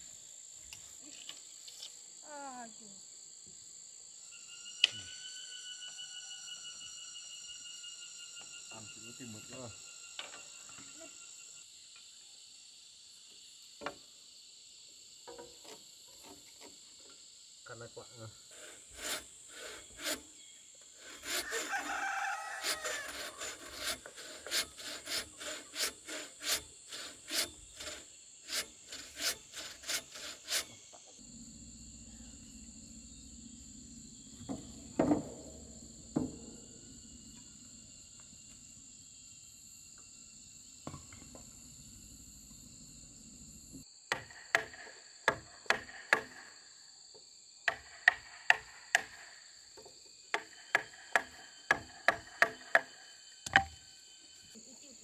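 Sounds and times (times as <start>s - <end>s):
insects buzzing: 0.0s - 55.0s
frame saw cutting wood: 18.5s - 32.6s, 34.3s - 37.4s, 50.4s - 53.7s
rooster crowing: 21.3s - 23.8s
mallet knocking chisel into log: 53.5s - 53.8s.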